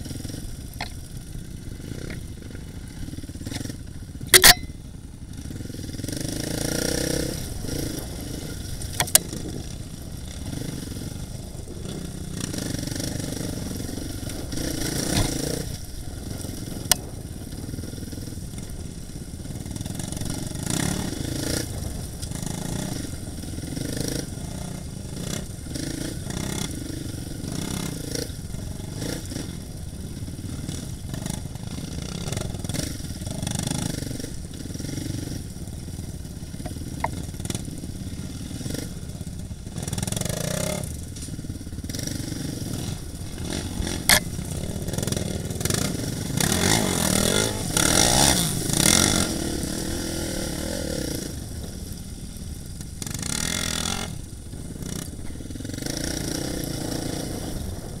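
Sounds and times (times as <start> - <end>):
dirt bike engine running: 0.0 - 58.0.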